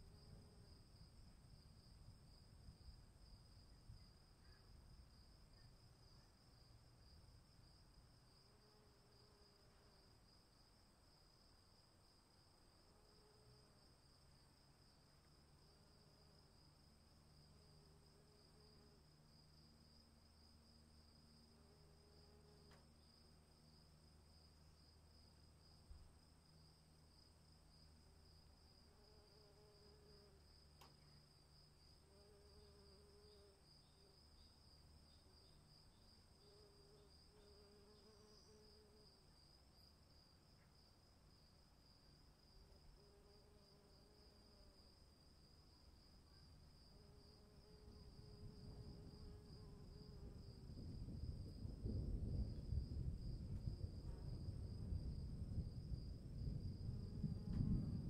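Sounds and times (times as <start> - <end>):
crickets chirping: 0.0 - 58.0
distant thunder rumble: 50.6 - 58.0.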